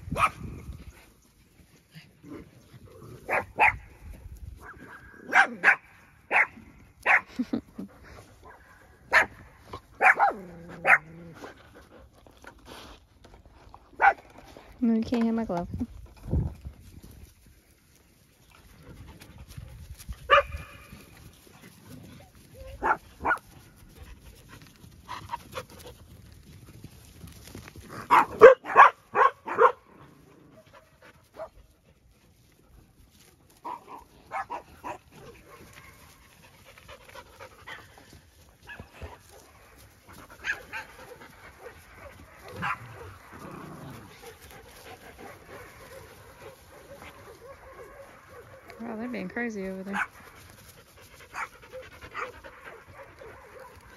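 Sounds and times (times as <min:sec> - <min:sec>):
dogs barking: 0:00.1 - 0:00.4, 0:03.2 - 0:03.8, 0:04.6 - 0:07.3, 0:08.4 - 0:11.1, 0:20.3 - 0:20.8, 0:22.8 - 0:23.5, 0:28.1 - 0:29.9, 0:33.6 - 0:36.0, 0:40.4 - 0:43.2, 0:44.4 - 0:48.8, 0:51.3 - 0:53.9.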